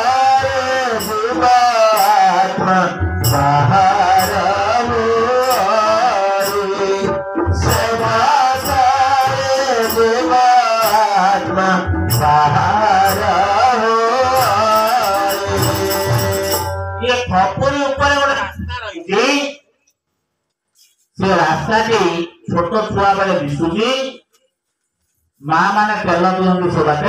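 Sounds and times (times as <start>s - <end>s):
drum percussion: 0.0s - 17.1s
person singing: 0.0s - 17.7s.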